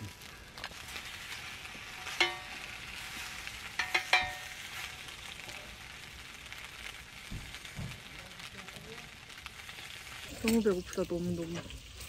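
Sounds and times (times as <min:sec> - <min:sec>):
meat sizzling on a grill pan: 0:00.0 - 0:12.0
metal tongs clinking on pan: 0:02.0 - 0:02.8, 0:03.8 - 0:04.9.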